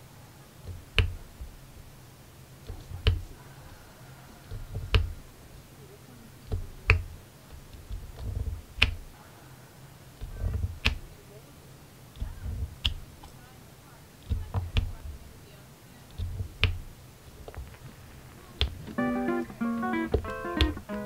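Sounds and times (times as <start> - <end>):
soft taps and thuds: 6.5 - 9.0, 10.2 - 11.1, 12.2 - 13.1, 14.3 - 15.2, 16.2 - 17.9.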